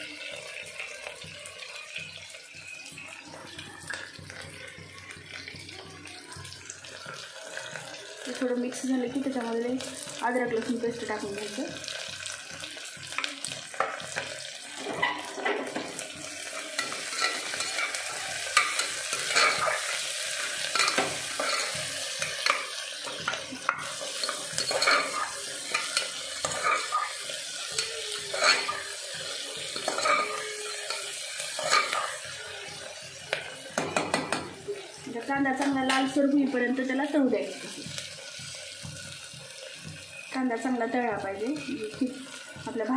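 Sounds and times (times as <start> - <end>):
food sizzling in hot oil: 0.0 - 42.9
metal spoon scraping a pot: 16.8 - 20.0, 20.6 - 32.4.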